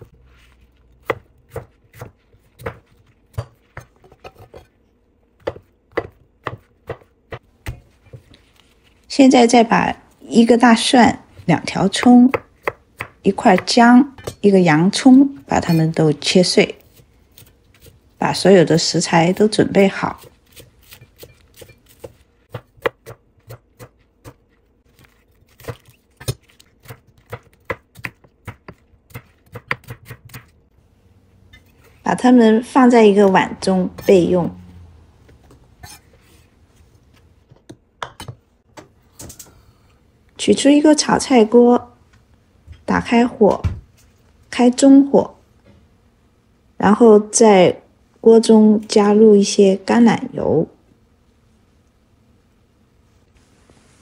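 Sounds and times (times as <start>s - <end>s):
knife chopping on cutting board: 1.0s - 4.7s, 5.4s - 8.2s, 20.1s - 24.4s, 25.0s - 30.5s.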